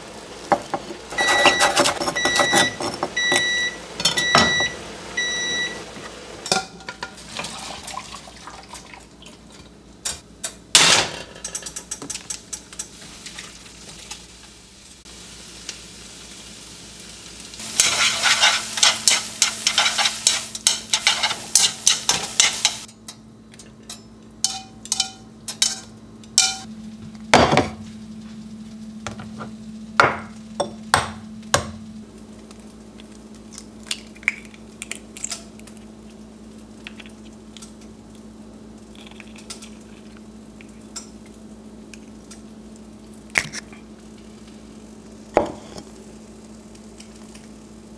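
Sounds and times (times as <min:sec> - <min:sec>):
noodles sizzling in wok: 0:00.0 - 0:08.4, 0:12.0 - 0:22.9, 0:35.9 - 0:47.9
steady low hum: 0:13.7 - 0:47.9.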